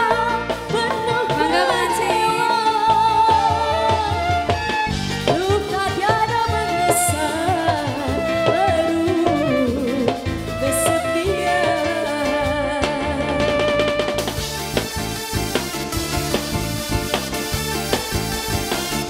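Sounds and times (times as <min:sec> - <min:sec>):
woman singing: 0:00.0 - 0:14.2
steady drum beat: 0:00.0 - 0:19.0.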